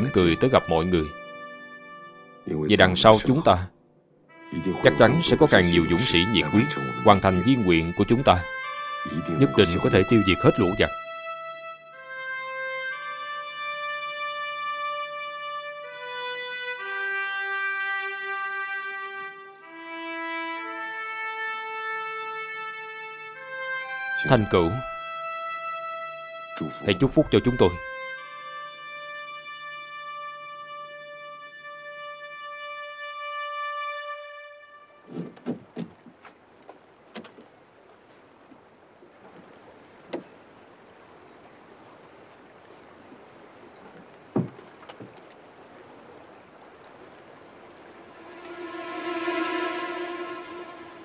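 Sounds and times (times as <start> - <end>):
brass melody of long notes: 0.0 - 35.1, 47.5 - 51.0.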